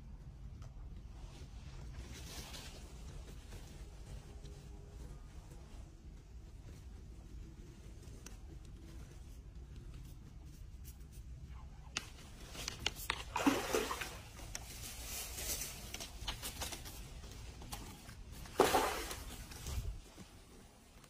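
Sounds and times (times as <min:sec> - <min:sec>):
fish splashing water: 0:13.1 - 0:14.4, 0:18.5 - 0:19.5.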